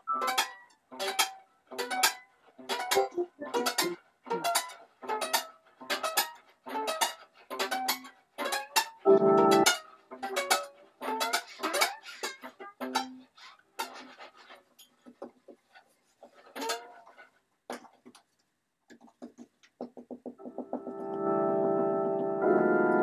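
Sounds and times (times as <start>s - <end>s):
fiddle strings plucked: 0.0s - 13.9s.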